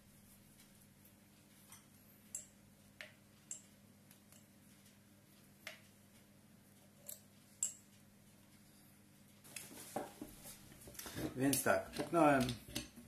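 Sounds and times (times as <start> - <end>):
metal parts clicking and tapping: 10.9 - 13.0.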